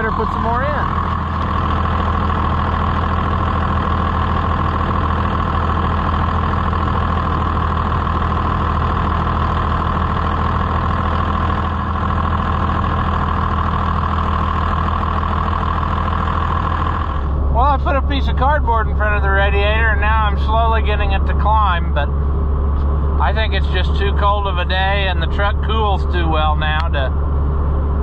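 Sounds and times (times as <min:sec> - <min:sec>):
diesel engine idling: 0:00.0 - 0:28.0
high whine: 0:16.6 - 0:28.0.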